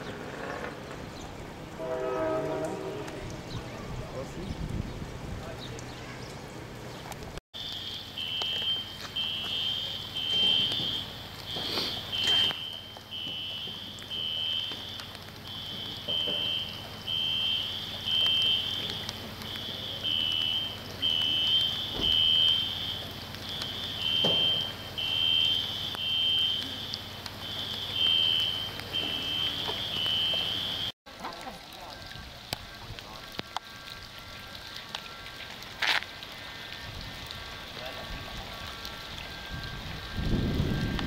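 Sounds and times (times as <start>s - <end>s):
high two-tone electronic alarm: 7.6s - 31.0s, 38.6s - 41.0s.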